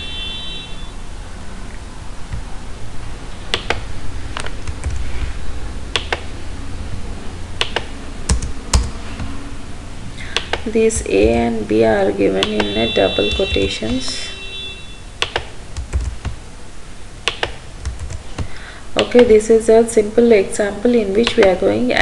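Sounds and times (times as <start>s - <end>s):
steady low hum: 0.0s - 22.0s
computer keyboard key clicks: 3.5s - 3.8s, 5.9s - 6.3s, 7.6s - 9.0s, 10.3s - 10.7s, 15.2s - 16.4s, 17.2s - 19.2s.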